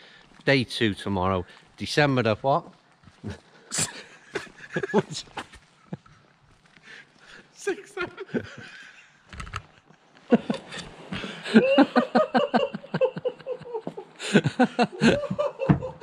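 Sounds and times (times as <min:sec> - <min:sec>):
man laughing loudly: 0:03.7 - 0:05.4, 0:07.7 - 0:09.1, 0:10.3 - 0:16.0.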